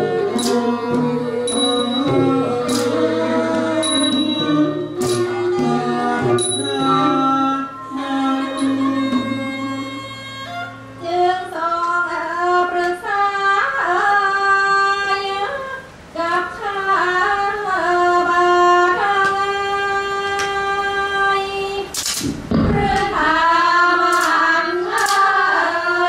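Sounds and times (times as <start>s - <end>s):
person singing slow melody: 0.0s - 12.9s.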